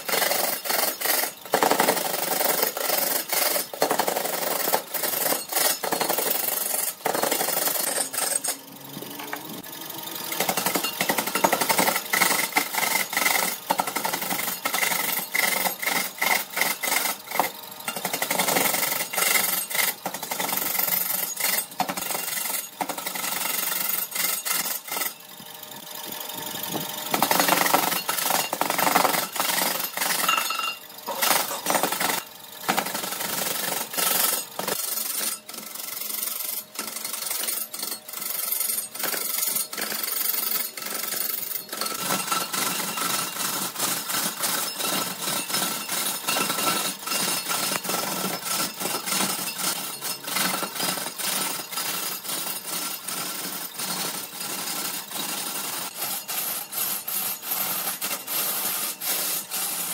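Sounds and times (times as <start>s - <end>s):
lathe tool scraping wood: 55.9s - 59.9s.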